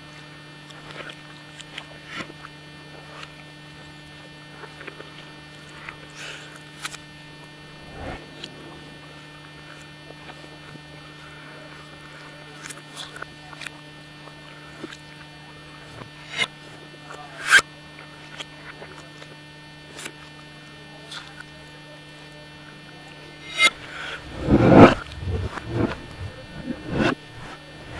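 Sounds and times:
steady electrical hum: 0:07.6 - 0:10.1, 0:23.2 - 0:27.9.

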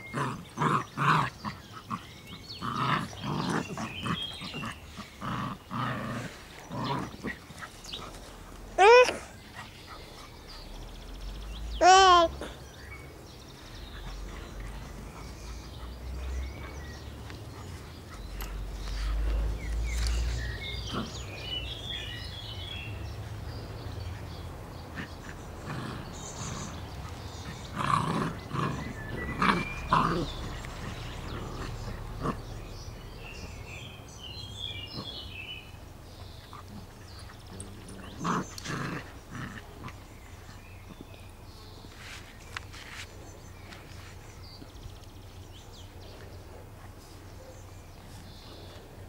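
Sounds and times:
puppies growling and yapping: 0:00.0 - 0:12.6, 0:13.5 - 0:22.2, 0:22.8 - 0:33.4, 0:35.9 - 0:41.1.

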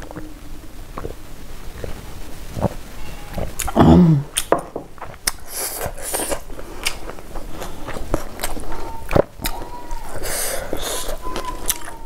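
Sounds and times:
mouth clicks: 0:03.3 - 0:04.5, 0:05.1 - 0:12.0
voiced sigh: 0:03.8 - 0:04.3.

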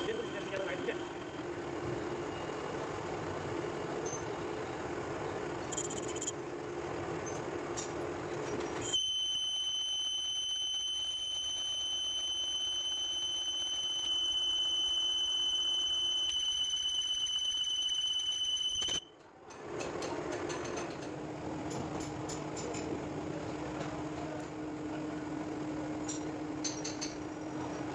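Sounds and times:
high-pitched cutting squeal: 0:08.9 - 0:19.0.

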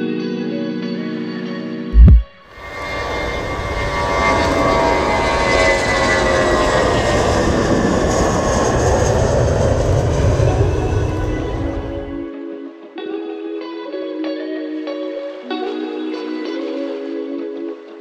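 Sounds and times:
jet engines rumbling and whining: 0:02.0 - 0:12.3.

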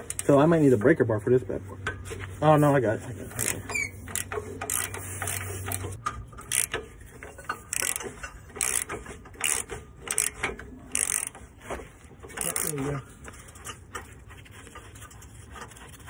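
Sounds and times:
socket ratchet clicking: 0:03.4 - 0:06.8, 0:07.5 - 0:11.4.

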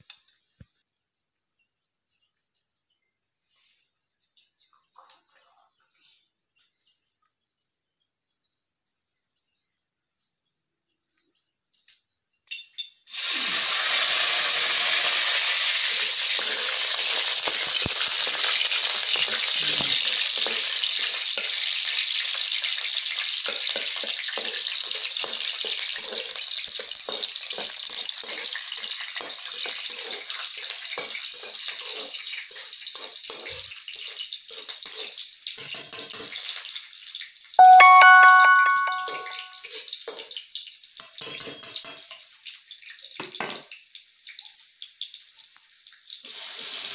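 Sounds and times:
food sizzling in hot oil: 0:12.6 - 0:46.9.

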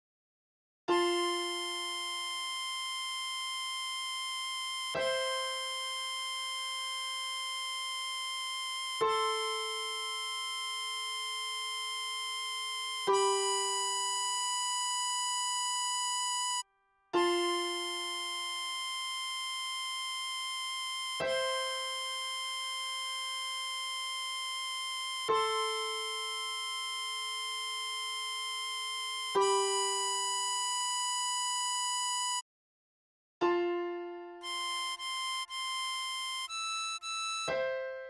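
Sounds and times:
synthesized keyboard chords: 0:08.5 - 0:16.6, 0:17.2 - 0:31.7, 0:33.4 - 0:38.0.

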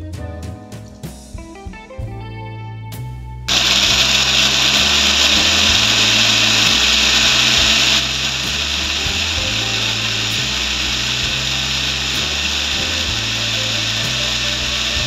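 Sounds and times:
blender motor running: 0:03.5 - 0:15.0.

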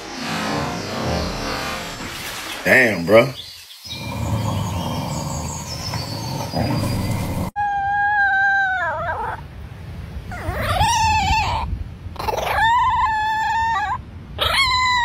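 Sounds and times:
outdoor rustling: 0:00.0 - 0:07.6
small dog howling: 0:07.5 - 0:09.4, 0:10.3 - 0:15.0.

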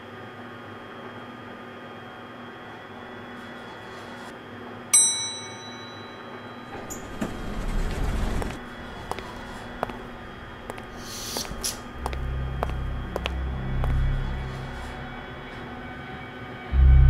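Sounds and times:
elevator chime ding: 0:04.9 - 0:07.0
low rumble: 0:11.9 - 0:15.3, 0:16.7 - 0:17.0.

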